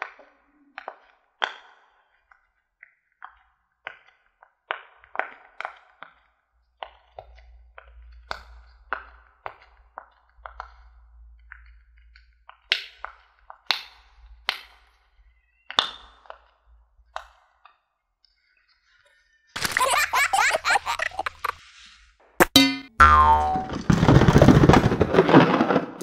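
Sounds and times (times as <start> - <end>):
fidget toy bubbles popping: 22.4 - 23.7.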